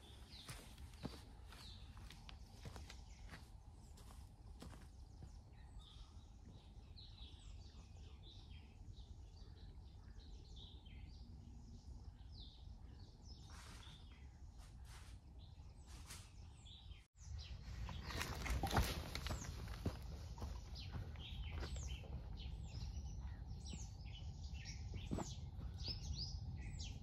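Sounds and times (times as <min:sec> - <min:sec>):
small birds chirping: 0:00.0 - 0:27.0
low background rumble: 0:17.2 - 0:27.0
footsteps crunching through dry leaves: 0:17.5 - 0:23.0.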